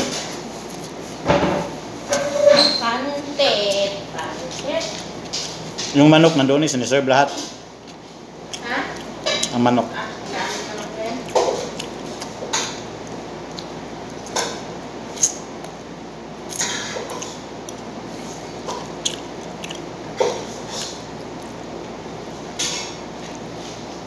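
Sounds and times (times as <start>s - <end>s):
chewing mouth sounds: 7.8s - 9.6s, 10.7s - 14.4s, 16.5s - 22.0s.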